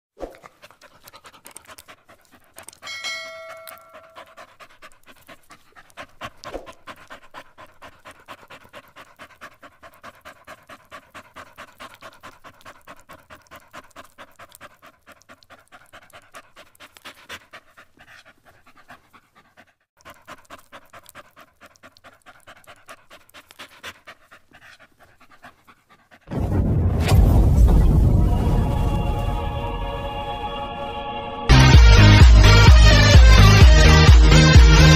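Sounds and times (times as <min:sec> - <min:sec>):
dog panting: 0:00.3 - 0:26.3, 0:31.5 - 0:34.9.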